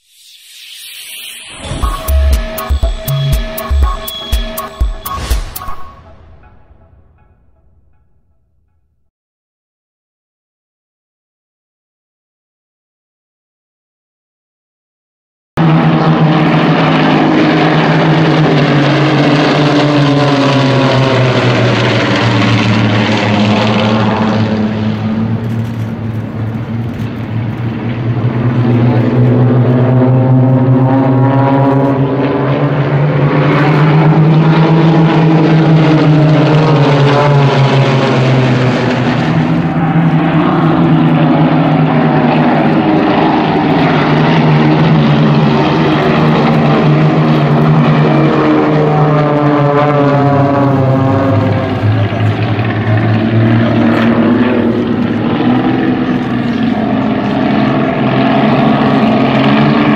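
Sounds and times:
propeller planes flying overhead: 15.6 - 59.9.

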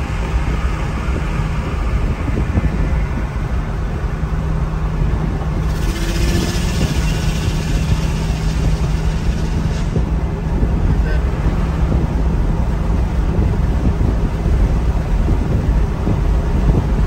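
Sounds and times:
car engine droning: 0.0 - 17.0
road noise: 0.0 - 17.0
passing car rushing hiss: 5.4 - 12.0.

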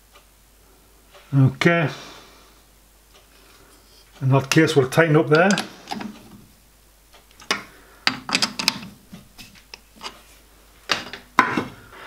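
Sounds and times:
lathe chuck metallic clicks: 4.4 - 6.4, 7.2 - 8.9.

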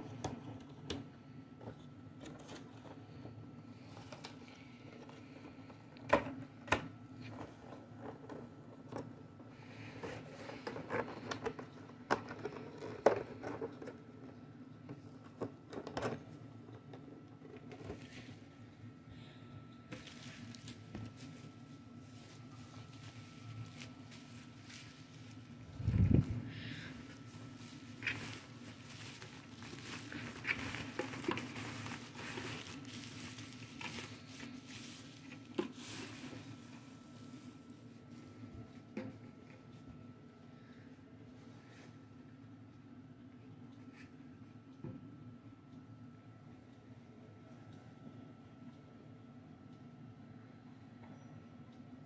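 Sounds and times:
scraping rustles: 20.0 - 36.6
bubble wrap crinkling: 27.4 - 35.2.

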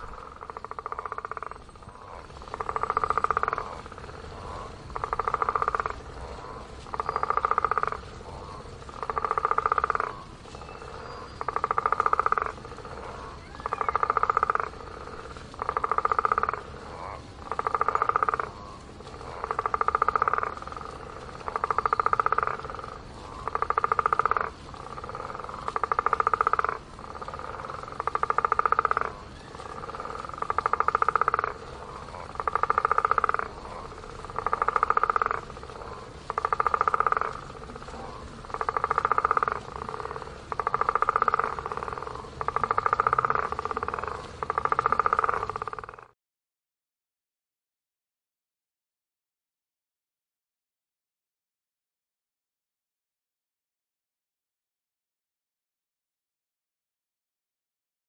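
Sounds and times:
frog croaking: 0.0 - 46.2.

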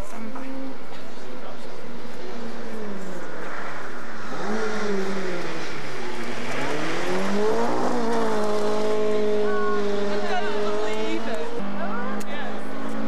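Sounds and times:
car engine revving hard: 1.3 - 13.0.

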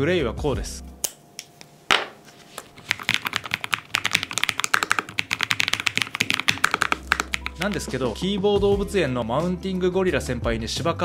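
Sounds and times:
mechanical keyboard typing: 2.8 - 7.9.

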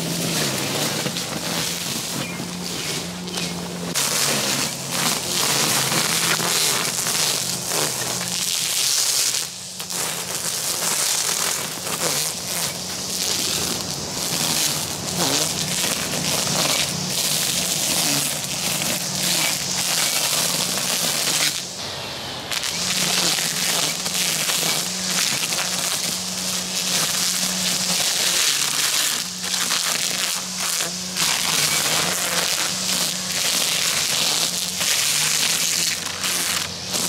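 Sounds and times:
string trimmer cutting grass: 0.0 - 37.0.

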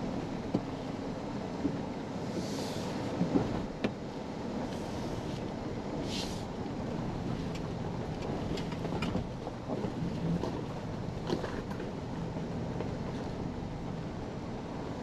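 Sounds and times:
truck and tyres rumbling on dirt: 5.4 - 15.0.

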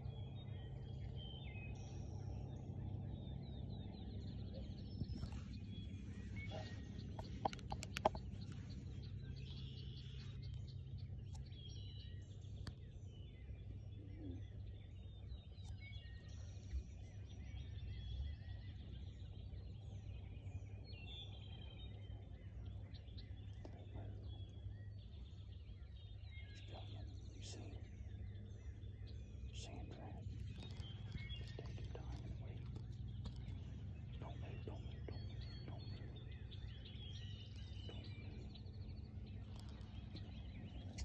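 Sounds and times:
low steady rumble: 0.0 - 41.0
songbirds chirping: 0.0 - 41.0.

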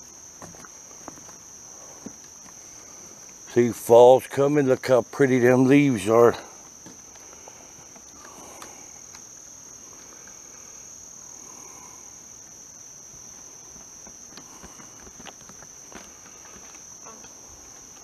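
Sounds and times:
crickets trilling: 0.0 - 18.0
faint clicks and rustles: 13.1 - 18.0.

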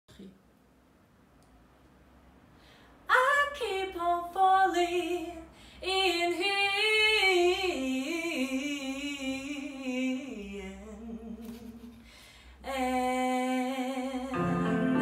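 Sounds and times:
singer breathing: 2.5 - 3.0, 5.5 - 5.8, 12.0 - 12.6
woman singing unaccompanied: 3.1 - 11.8, 12.6 - 15.0
musical accompaniment: 14.3 - 15.0.

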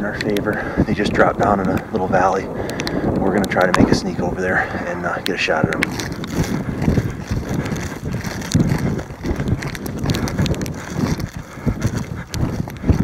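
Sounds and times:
wind buffeting microphone: 0.0 - 13.0
footsteps through dry stubble: 2.7 - 13.0.

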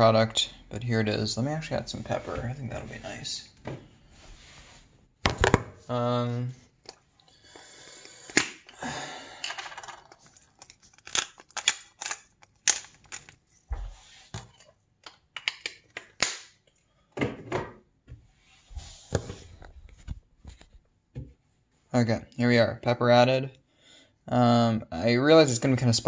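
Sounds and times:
clicks crunches and knocks: 9.8 - 13.4.

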